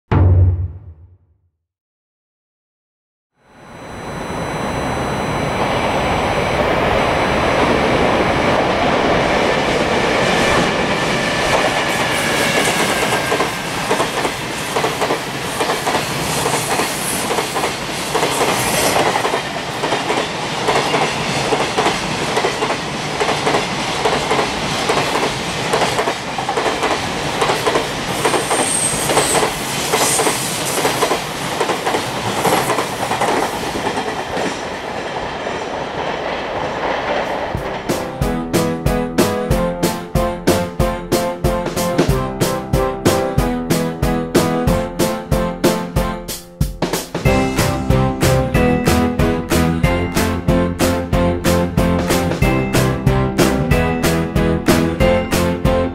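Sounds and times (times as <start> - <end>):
locomotive motor whine: 3.5 - 8.8.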